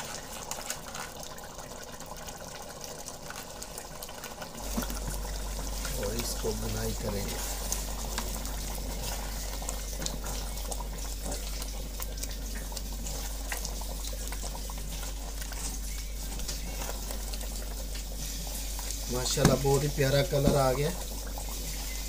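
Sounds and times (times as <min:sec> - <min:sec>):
curry bubbling and sizzling: 0:00.0 - 0:22.0
spatula stirring in a pot: 0:04.6 - 0:22.0.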